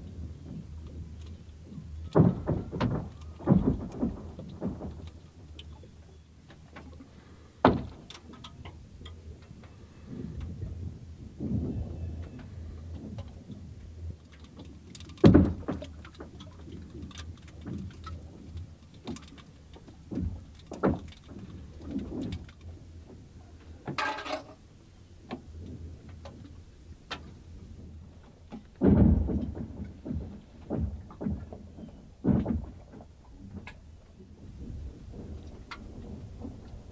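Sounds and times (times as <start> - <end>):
lake ice cracking and popping: 0.0 - 5.8, 13.0 - 23.2, 34.4 - 36.9.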